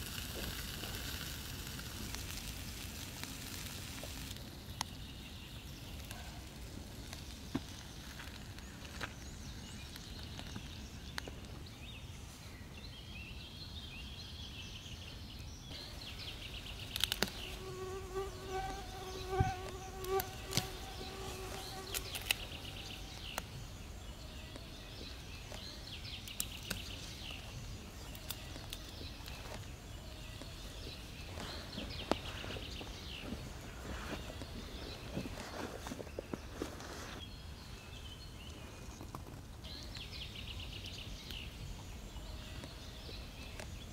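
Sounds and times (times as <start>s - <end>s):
flying insect buzzing: 16.8s - 23.4s.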